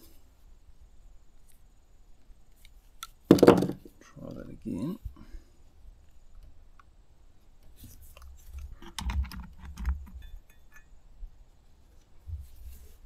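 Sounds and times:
plastic clicks and rattles: 8.2s - 10.2s.

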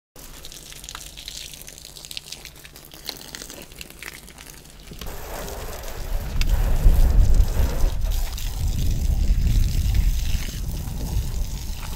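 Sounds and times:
hose water splashing on car: 0.2s - 11.9s.

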